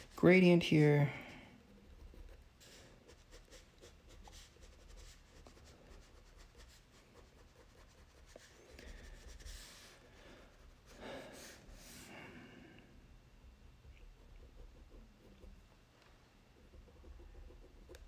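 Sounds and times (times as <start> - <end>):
crayon scratching on paper: 1.7 - 10.8, 13.9 - 15.6, 16.6 - 18.0.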